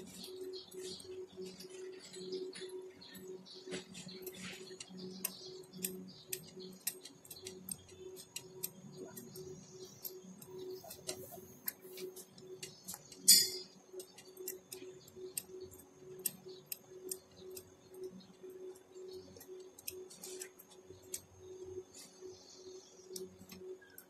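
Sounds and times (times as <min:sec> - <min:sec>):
hand tools tapping on metal: 0:01.6 - 0:15.6.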